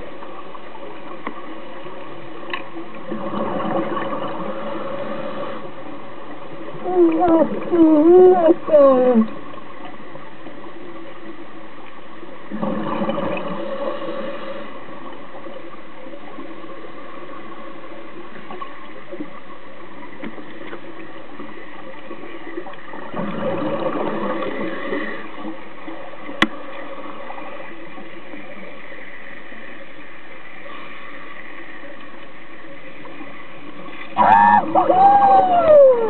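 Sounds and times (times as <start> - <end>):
underwater hiss: 3.2 - 6.3, 12.8 - 15.1, 23.3 - 25.6
scuba exhalation bubbles: 34.2 - 36.0.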